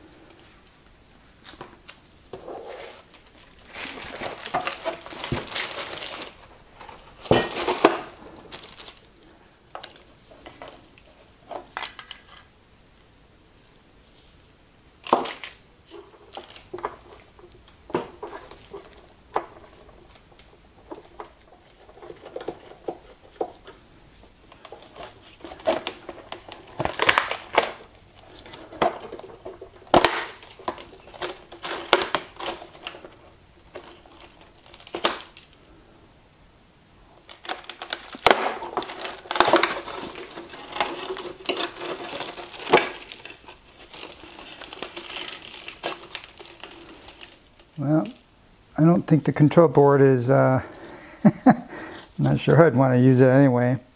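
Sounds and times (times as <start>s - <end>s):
plastic casing scraping: 1.4s - 9.1s, 15.0s - 35.6s, 37.2s - 48.2s.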